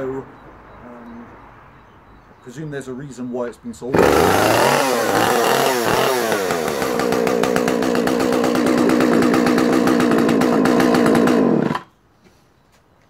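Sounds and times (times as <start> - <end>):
chainsaw revving and running: 3.9 - 11.9.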